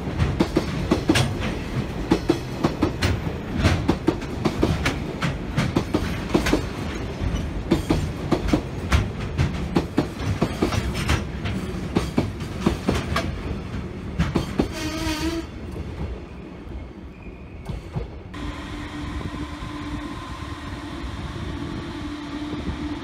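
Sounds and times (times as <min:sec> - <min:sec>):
wheels clacking over rail joints: 0:00.0 - 0:15.1
freight train rumbling past: 0:00.0 - 0:23.0.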